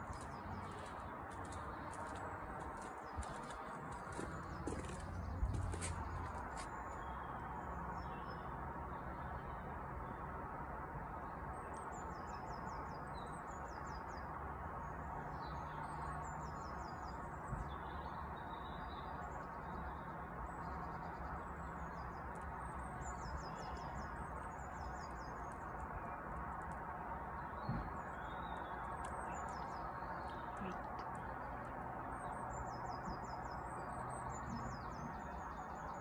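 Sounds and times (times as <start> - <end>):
birds singing: 15.4 - 26.3, 27.4 - 36.0.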